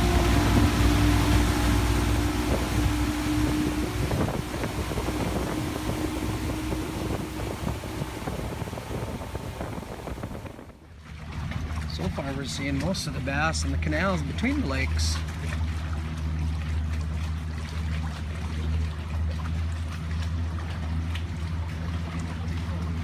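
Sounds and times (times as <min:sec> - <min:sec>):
wind buffeting microphone: 0:00.0 - 0:15.1
motorboat engine running: 0:00.0 - 0:23.0
water noise: 0:00.0 - 0:23.0.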